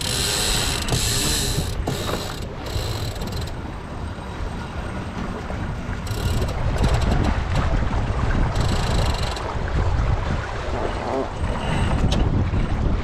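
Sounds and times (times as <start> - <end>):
wind rumbling on microphone: 0.0 - 13.0
winch pawls clicking: 6.1 - 7.3.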